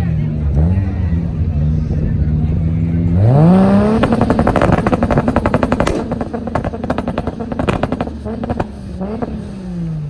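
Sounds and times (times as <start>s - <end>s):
car engine revving: 0.4s - 10.0s
exhaust crackling and popping: 3.6s - 9.4s.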